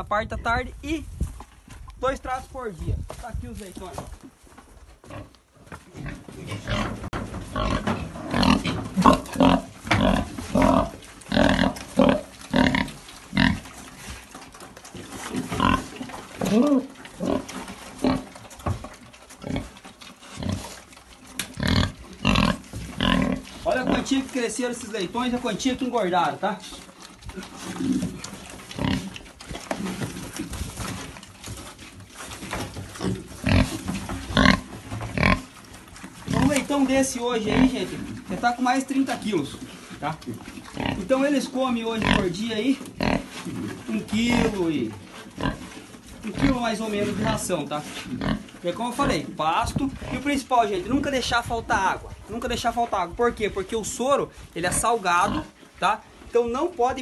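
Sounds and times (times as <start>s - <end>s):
animals scuffling: 0.6s - 57.0s
pigs grunting: 5.0s - 25.8s, 26.5s - 50.5s, 54.6s - 56.2s
piglets grunting: 5.9s - 13.7s, 15.2s - 18.3s, 21.6s - 24.1s, 27.3s - 30.6s, 32.9s - 35.5s.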